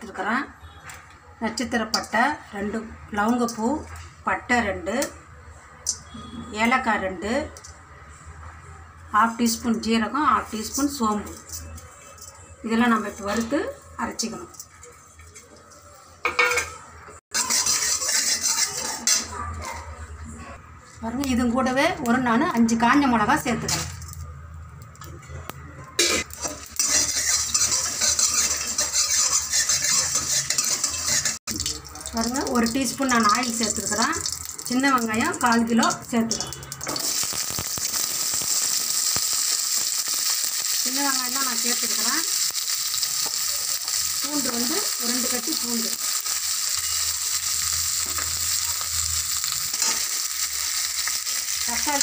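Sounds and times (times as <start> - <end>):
spatula scraping seeds in a pan: 17.3 - 19.3, 26.2 - 31.4, 47.9 - 52.0
food sizzling in hot oil: 17.3 - 19.4, 26.0 - 52.0.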